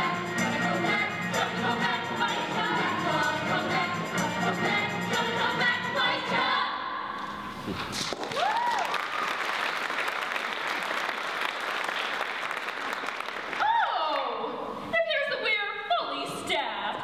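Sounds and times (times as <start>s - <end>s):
ensemble singing with accompaniment: 0.0s - 7.6s
audience applause: 8.1s - 13.7s
person cheering: 8.2s - 9.0s, 13.6s - 14.4s.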